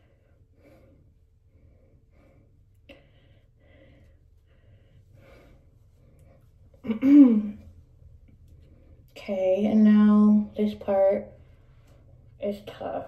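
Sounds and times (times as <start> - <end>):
faint breaths: 0.0 - 6.8.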